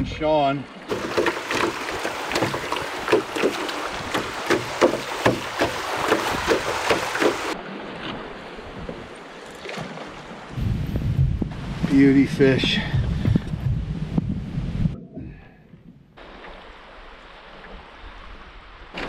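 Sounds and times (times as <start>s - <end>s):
water splashing around canoe: 0.5s - 11.8s, 16.2s - 19.0s.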